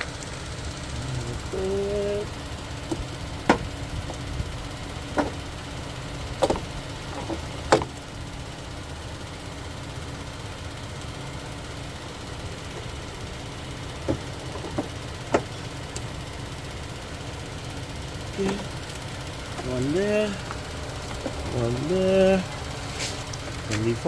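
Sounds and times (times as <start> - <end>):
steady low rumble: 0.0 - 24.0
sharp plastic clicks and knocks: 6.4 - 8.0.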